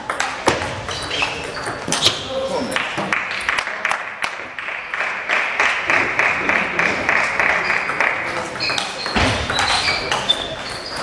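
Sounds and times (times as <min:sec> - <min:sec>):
table tennis ball pings: 0:00.0 - 0:02.3, 0:07.6 - 0:11.0
spectators clapping: 0:02.6 - 0:09.0.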